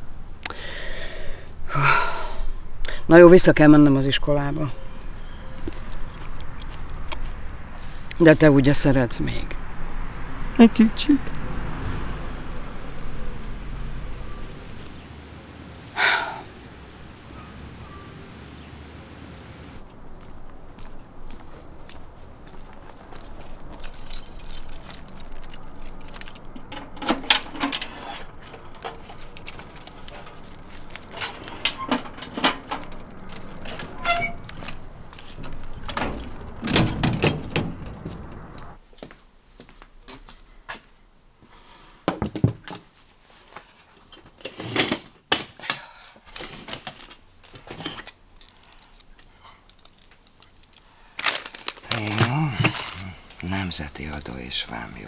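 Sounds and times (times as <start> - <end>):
keys jangling: 23.1 - 38.6, 48.0 - 50.8
chair moving: 25.9 - 38.8.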